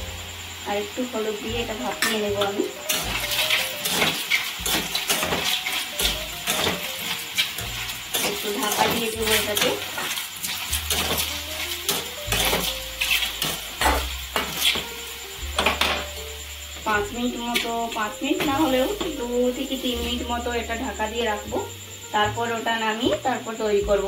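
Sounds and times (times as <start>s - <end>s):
metal spatula scraping a pan: 1.8s - 16.1s.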